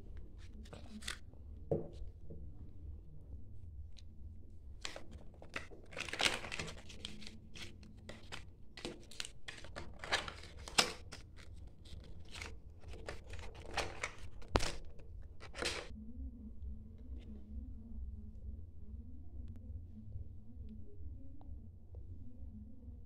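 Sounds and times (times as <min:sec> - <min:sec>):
thin plastic crinkling and tearing: 0:00.2 - 0:01.2, 0:04.8 - 0:15.9
sharp plastic clicks: 0:04.9 - 0:15.9.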